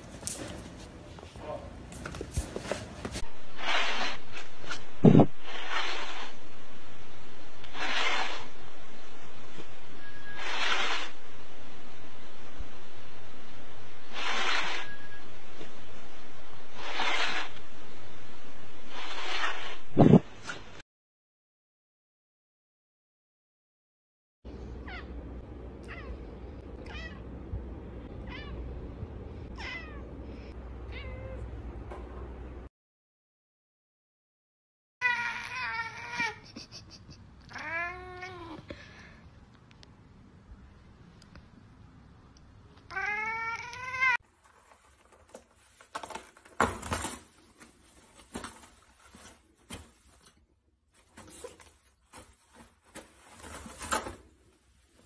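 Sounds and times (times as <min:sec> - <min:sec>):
cat meowing: 0:25.8 - 0:26.2, 0:26.8 - 0:27.2, 0:29.6 - 0:30.1, 0:30.9 - 0:31.4, 0:35.0 - 0:36.4, 0:37.5 - 0:38.6, 0:42.9 - 0:44.2
toilet paper rustling: 0:44.2 - 0:55.0.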